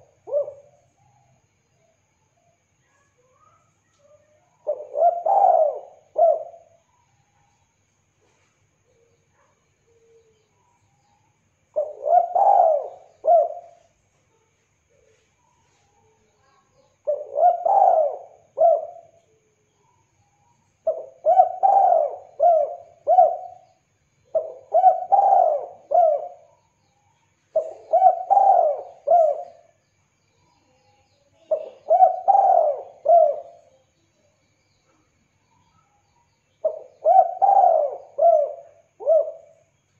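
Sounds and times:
dove cooing: 0.0s - 0.8s, 4.6s - 6.8s, 11.8s - 13.9s, 16.4s - 19.2s, 20.8s - 26.6s, 27.5s - 29.8s, 31.4s - 33.8s, 36.6s - 39.7s.

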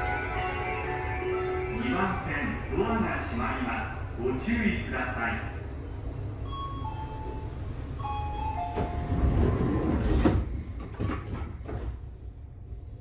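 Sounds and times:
descending door chime: 6.4s - 10.6s
sliding doors shutting with thump: 8.5s - 12.1s.

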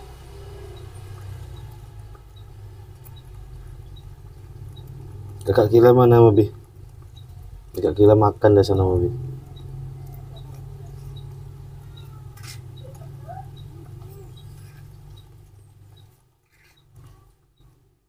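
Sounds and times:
steady low hum: 0.0s - 17.9s
faint squeaks: 8.6s - 17.9s.

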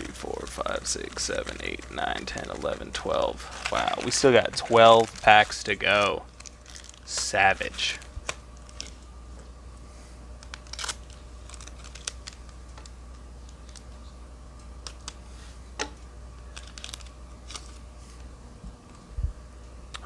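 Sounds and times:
cards rustling: 0.0s - 9.0s, 10.4s - 14.1s, 16.5s - 18.2s
foil pack crinkling: 0.0s - 9.0s, 10.4s - 13.9s, 16.5s - 17.9s
low steady hum: 0.0s - 20.0s.

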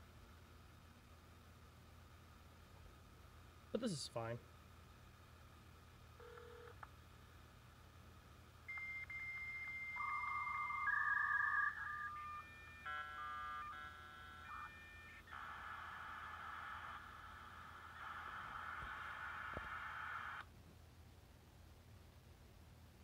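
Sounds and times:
modem hiss: 0.0s - 20.6s
modem chord of tones: 8.7s - 15.6s
modem low tone: 8.7s - 20.4s.

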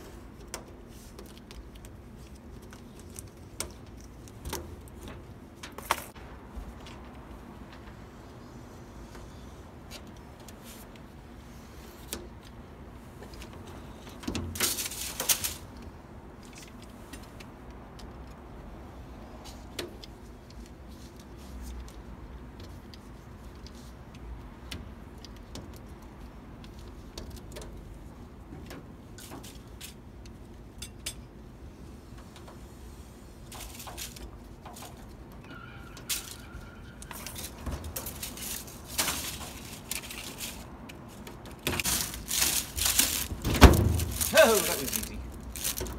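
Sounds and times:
steady background noise: 0.0s - 45.9s
rubber gasket rattle: 37.2s - 45.9s.

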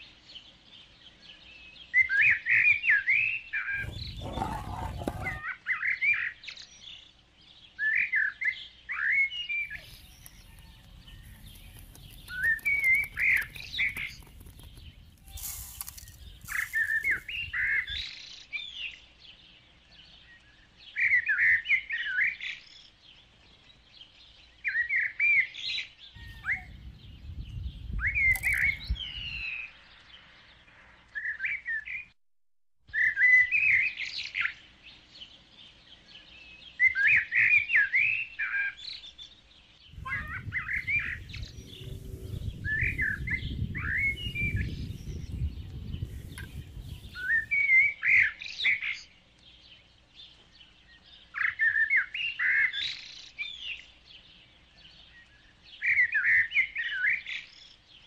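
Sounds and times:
songbird chirping: 0.0s - 32.2s, 32.9s - 58.0s
low rumble: 39.9s - 47.3s.

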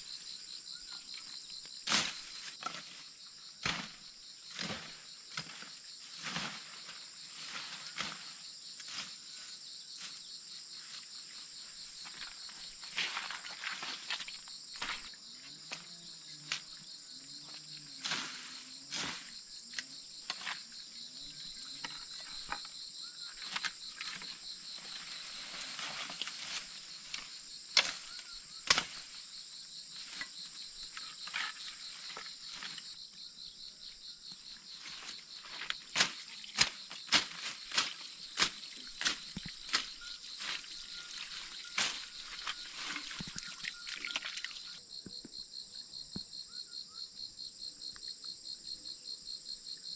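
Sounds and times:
high-pitched insect chorus: 0.0s - 49.9s
machete hacking through undergrowth: 3.6s - 5.6s, 25.8s - 29.2s, 35.0s - 43.4s.

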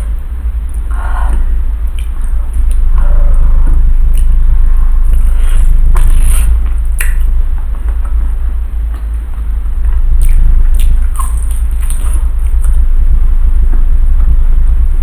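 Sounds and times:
steady low hum: 0.0s - 15.0s
chewing mouth sounds: 5.0s - 7.3s, 10.1s - 12.8s.

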